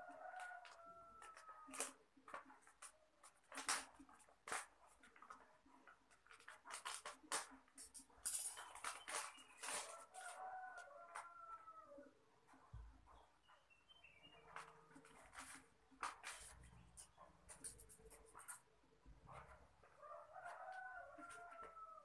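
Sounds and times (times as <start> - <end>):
plastic shrink-wrap crinkling: 6.2 - 7.6, 8.3 - 10.1.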